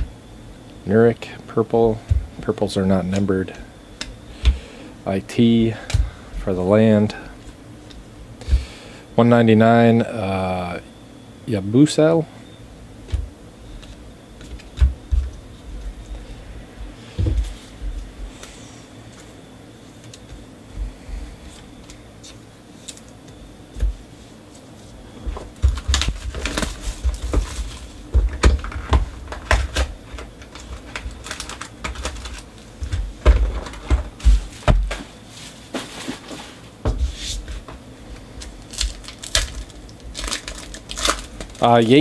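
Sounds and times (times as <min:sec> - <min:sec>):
wrappers rustling: 0:25.7 - 0:28.1, 0:29.3 - 0:33.0, 0:38.1 - 0:42.0.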